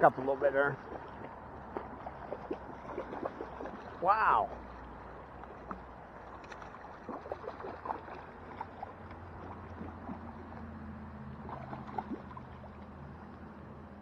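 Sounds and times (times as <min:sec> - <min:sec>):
creek flowing: 0:00.0 - 0:14.0
fish splashing in water: 0:00.5 - 0:13.4.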